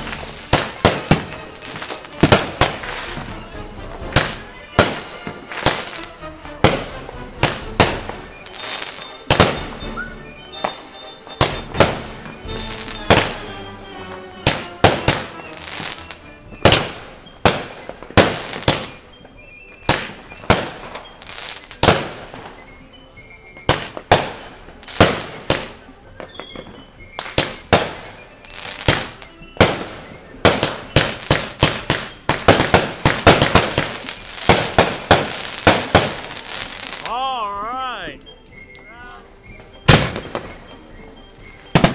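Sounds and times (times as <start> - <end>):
firework cake bangs: 0.0 - 3.3, 6.6 - 9.8, 16.6 - 19.0, 19.8 - 21.1, 23.6 - 37.1, 41.7 - 41.9.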